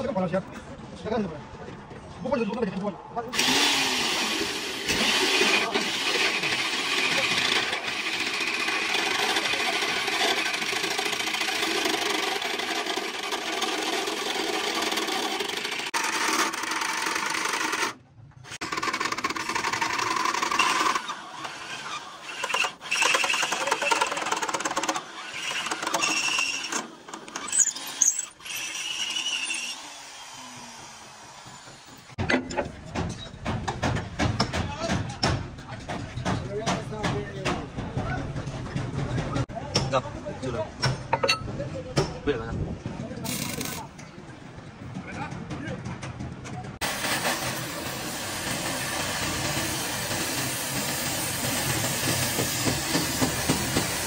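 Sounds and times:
short bursts of tool sound: 3.4s - 30.9s, 43.2s - 43.9s.

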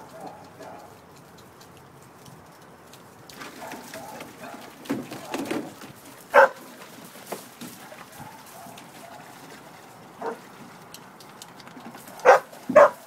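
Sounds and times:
dog barking: 3.5s - 4.6s, 6.3s - 6.7s, 7.8s - 9.4s, 10.2s - 10.4s, 12.1s - 13.0s.

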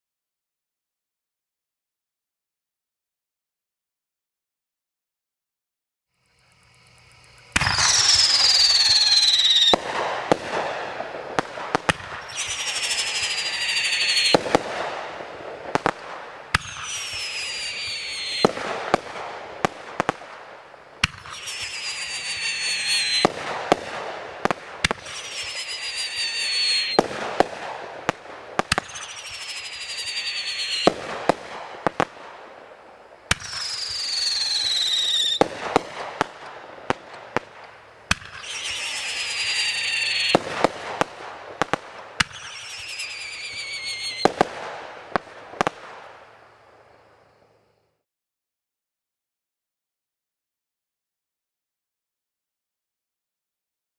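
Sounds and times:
firework bangs and crackling: 7.5s - 46.5s
firework whistle falling in pitch: 7.6s - 10.0s, 12.2s - 14.6s, 16.6s - 18.7s, 21.2s - 23.4s, 25.0s - 27.1s, 28.7s - 31.0s, 33.3s - 35.4s, 38.3s - 40.6s, 42.3s - 44.4s.

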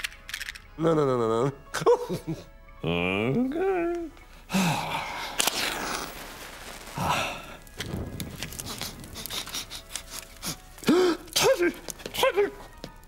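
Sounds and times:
faint fire crackling: 2.0s - 13.0s
breathy puff blowing out match: 5.0s - 12.0s.

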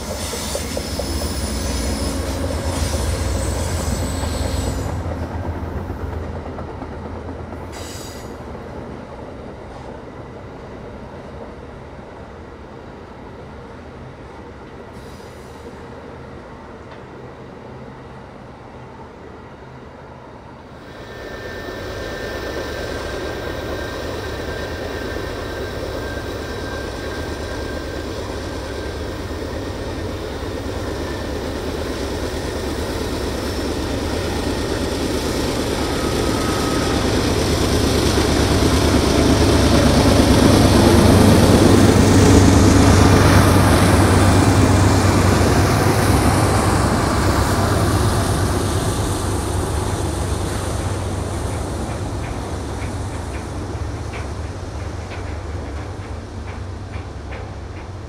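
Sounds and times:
train wheels rumbling on rail: 0.0s - 58.0s
passenger cars rolling on track: 20.8s - 58.0s
locomotive engine hum: 21.0s - 58.0s.

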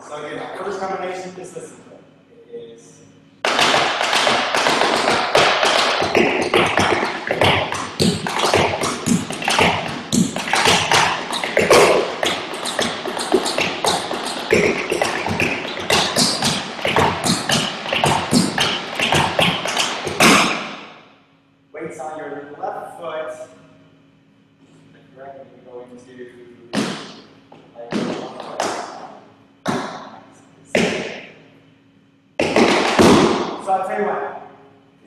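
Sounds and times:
tap shoes on wooden board: 3.5s - 20.6s, 32.4s - 33.5s.

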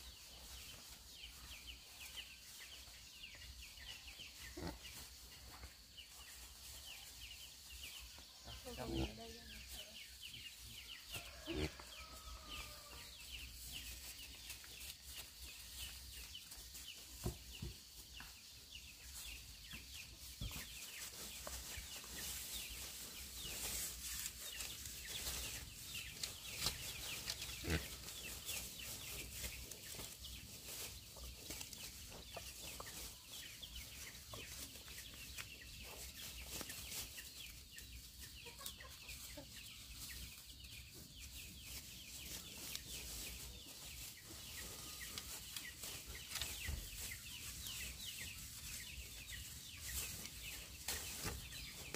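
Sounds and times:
chickens clucking: 0.0s - 51.9s.

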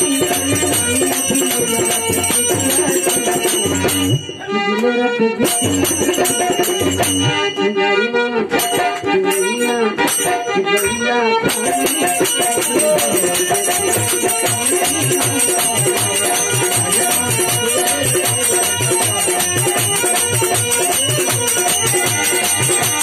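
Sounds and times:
percussion beat: 0.0s - 7.8s, 8.5s - 23.0s
harmonium: 0.0s - 23.0s
man singing into a microphone: 0.0s - 23.0s.

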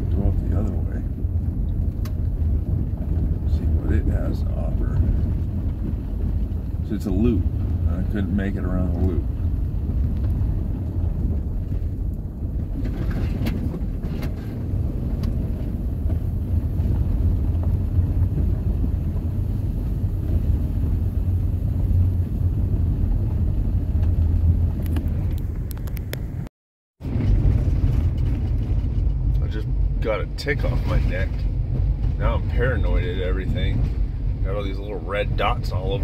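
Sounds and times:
light rattles and clicks: 0.0s - 22.3s, 23.2s - 26.3s
vehicle driving on dirt road: 0.0s - 36.0s.

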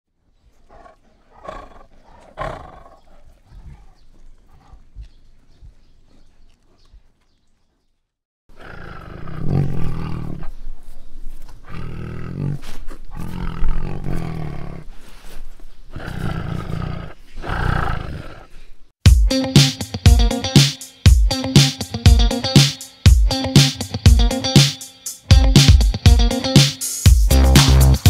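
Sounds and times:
tiger roaring: 0.6s - 4.9s, 8.5s - 10.6s, 11.6s - 14.9s, 15.9s - 18.6s.

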